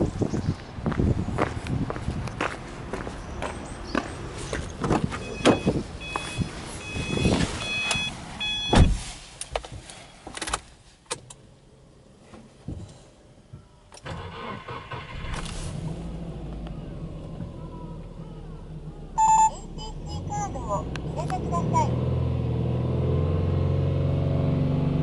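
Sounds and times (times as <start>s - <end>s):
high electronic beep: 5.2s - 8.9s, 19.2s - 20.9s
car door thud: 8.7s - 9.0s
car engine starting and idling: 13.9s - 25.0s.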